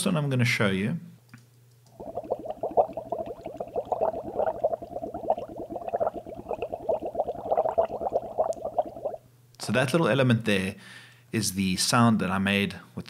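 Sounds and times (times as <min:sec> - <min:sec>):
bubbling through a straw in water: 0:01.9 - 0:09.2.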